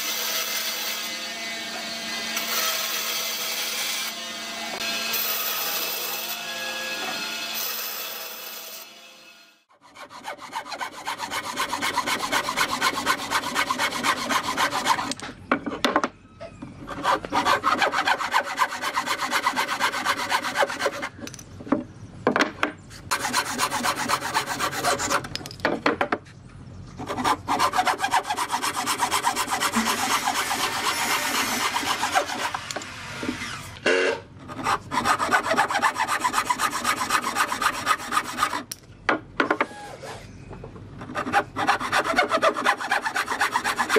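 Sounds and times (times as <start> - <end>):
hand saw rasping through wood: 9.7 - 15.2, 16.8 - 21.2, 23.1 - 25.3, 27.0 - 33.6, 34.5 - 38.7, 41.0 - 43.9.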